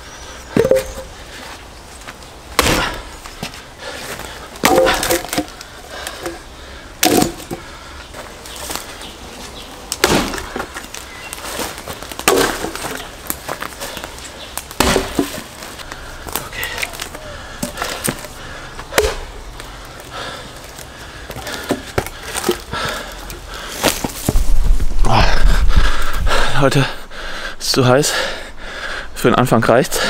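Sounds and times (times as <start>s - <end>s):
wood pieces knocking: 0.5s - 1.1s, 4.6s - 6.4s, 7.0s - 7.6s, 11.6s - 13.7s, 14.6s - 15.6s
axe blows splitting wood: 2.6s - 3.1s, 4.6s - 6.4s, 7.0s - 7.6s, 9.9s - 10.7s, 11.6s - 13.0s, 14.7s - 15.4s, 18.9s - 19.3s.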